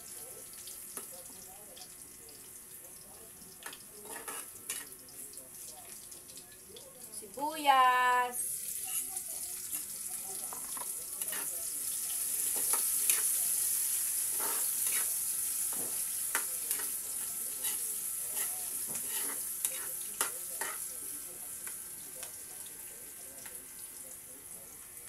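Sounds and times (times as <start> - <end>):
onions sizzling in hot oil: 0.0 - 25.0
metal spatula scraping wok: 4.0 - 4.8, 14.3 - 15.1, 17.6 - 20.0.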